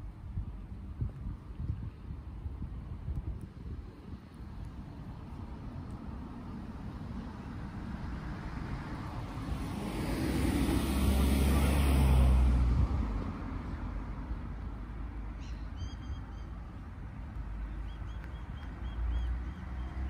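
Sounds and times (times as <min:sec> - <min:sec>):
vehicle driving past: 0:07.6 - 0:14.1.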